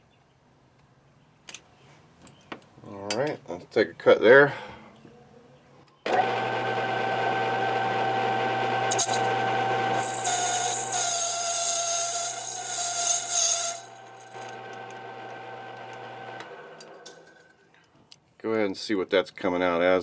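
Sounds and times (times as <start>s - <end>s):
lathe motor whine: 6.1s - 11.3s, 12.3s - 17.0s
cutting tool hissing on plastic: 8.9s - 14.0s.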